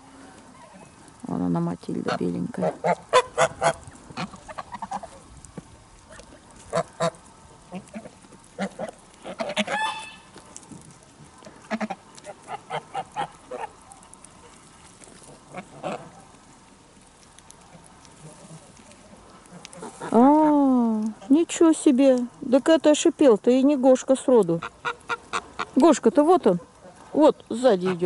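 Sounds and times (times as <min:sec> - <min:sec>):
geese honking: 0:02.0 - 0:05.2, 0:06.1 - 0:10.4, 0:11.6 - 0:16.4, 0:24.6 - 0:25.8.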